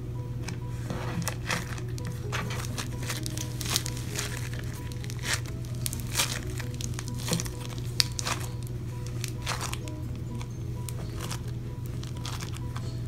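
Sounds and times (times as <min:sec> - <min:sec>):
foam slime crackling: 0:00.8 - 0:13.0.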